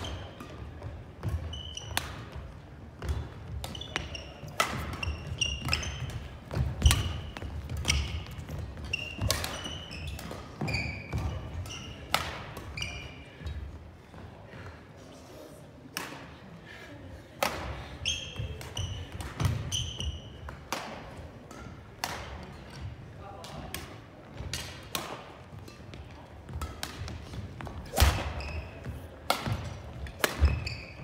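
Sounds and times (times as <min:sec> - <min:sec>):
rackets striking shuttlecocks: 0:00.1 - 0:13.0, 0:17.4 - 0:22.8, 0:23.4 - 0:31.0
shoes squeaking: 0:01.2 - 0:13.6, 0:18.0 - 0:20.6, 0:25.6 - 0:31.0.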